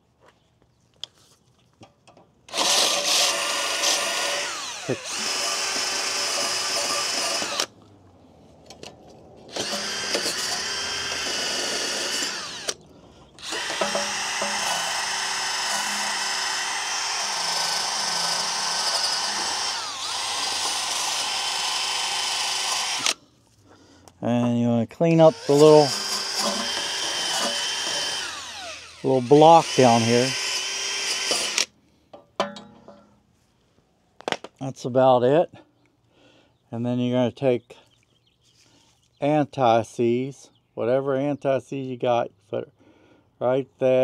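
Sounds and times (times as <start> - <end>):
drill with wire brush whining: 2.5 - 7.7, 9.5 - 12.8, 13.4 - 23.2, 25.1 - 31.7.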